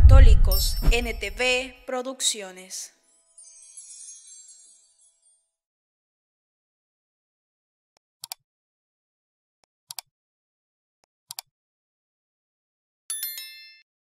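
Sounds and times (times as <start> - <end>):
bright bell chime: 3.1 - 5.5, 13.1 - 13.9.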